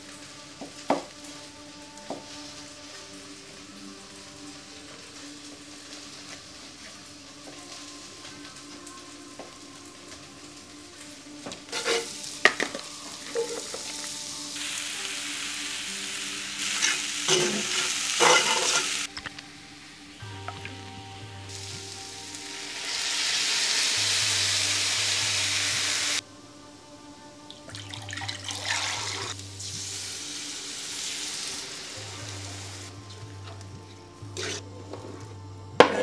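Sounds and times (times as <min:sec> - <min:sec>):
food sizzling in a frying pan: 0:00.0 - 0:26.2, 0:27.6 - 0:36.0
utensil scraping a pan: 0:11.7 - 0:13.9, 0:16.8 - 0:19.1, 0:34.4 - 0:35.2.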